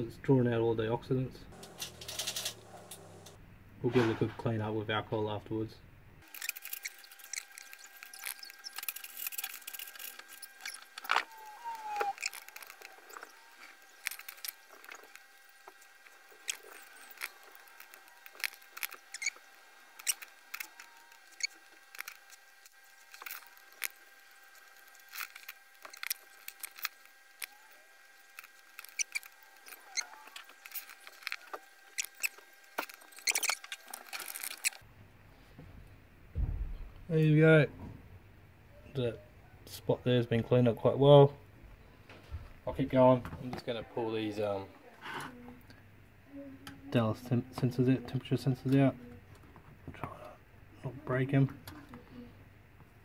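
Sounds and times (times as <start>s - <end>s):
faint steady whine: 0.0s - 53.0s
flux sizzling and crackling: 6.2s - 34.8s.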